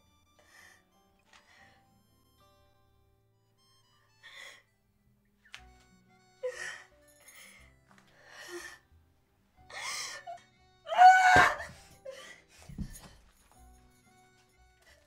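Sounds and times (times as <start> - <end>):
woman crying: 9.7 - 12.5.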